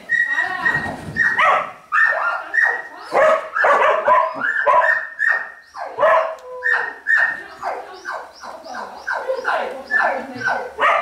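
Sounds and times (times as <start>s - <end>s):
dog barking rapidly: 0.6s - 11.0s.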